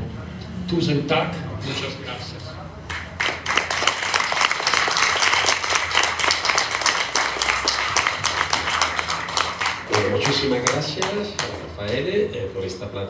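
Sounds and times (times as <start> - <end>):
audience applauding: 2.9 - 11.8.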